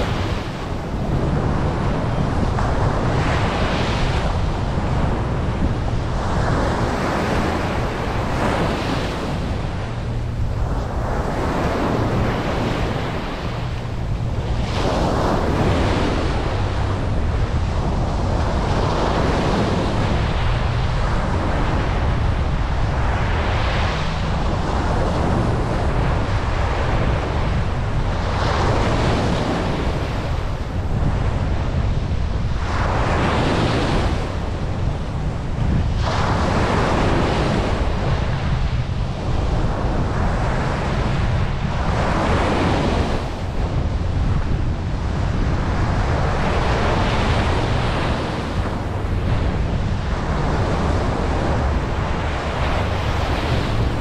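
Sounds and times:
ocean surf breaking on beach: 0:00.0 - 0:54.0
wind rumble on microphone: 0:00.0 - 0:54.0.

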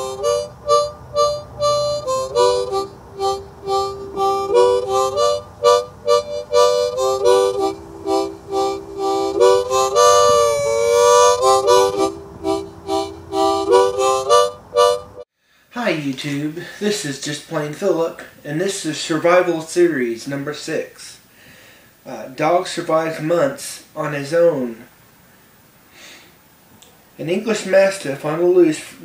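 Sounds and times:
harmonica tune: 0:00.0 - 0:15.2.

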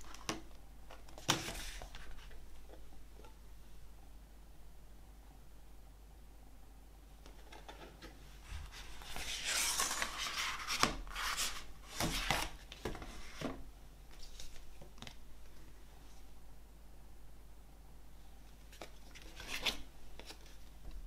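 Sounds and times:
paper and card rustling: 0:07.3 - 0:13.5.

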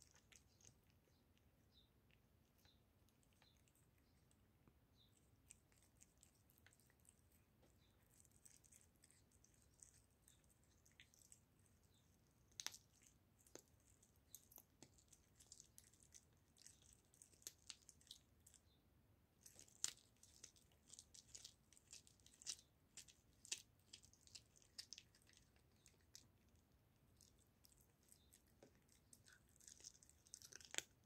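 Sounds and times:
kitten chewing bone: 0:00.0 - 0:31.0.

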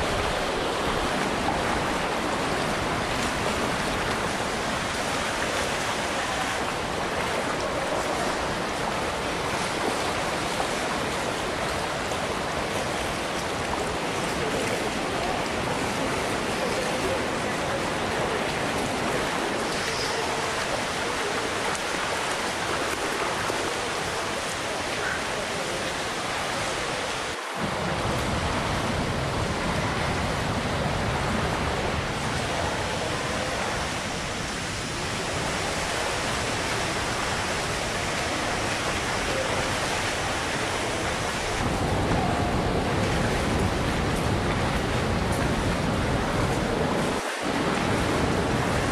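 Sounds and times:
water rushing over small waterfalls: 0:00.0 - 0:48.9.

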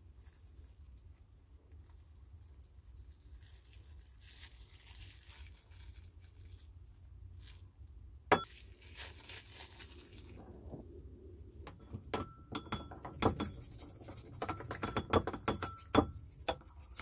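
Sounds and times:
cling film crinkling and tearing: 0:00.0 - 0:07.8, 0:08.5 - 0:10.5
metal part clinking into ceramic bowl: 0:12.2 - 0:13.6.

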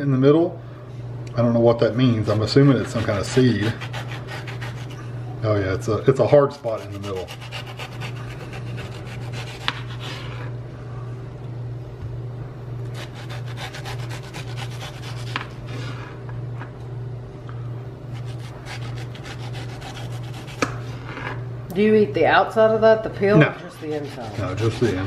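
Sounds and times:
steady low hum: 0:00.0 - 0:25.0
knife rasping through fruit: 0:02.2 - 0:05.1, 0:06.4 - 0:10.5, 0:12.9 - 0:16.0, 0:18.1 - 0:21.4, 0:23.6 - 0:25.0.

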